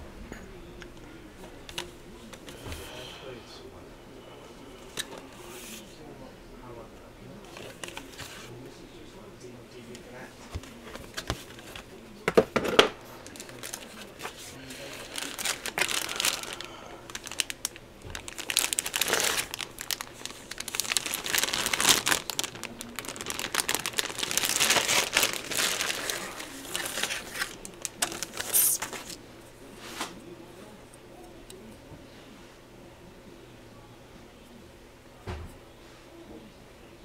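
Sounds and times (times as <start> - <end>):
plastic bags crinkling: 13.2 - 29.2.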